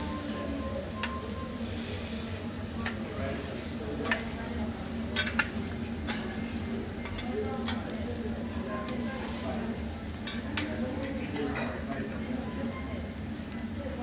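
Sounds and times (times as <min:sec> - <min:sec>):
food sizzling on griddle: 0:00.0 - 0:14.0
metal spatula clicking and scraping: 0:05.2 - 0:06.3, 0:10.2 - 0:10.8.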